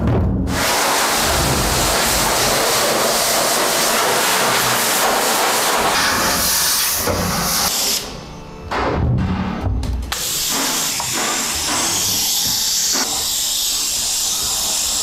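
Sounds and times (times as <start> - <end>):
pressure sprayer hissing: 0.5 - 8.1, 10.1 - 15.0.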